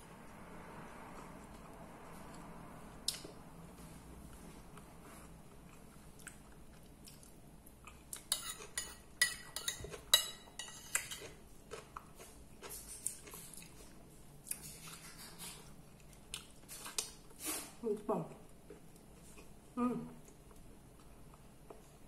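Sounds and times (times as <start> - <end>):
fork scraping and clinking on plate: 8.3 - 11.4.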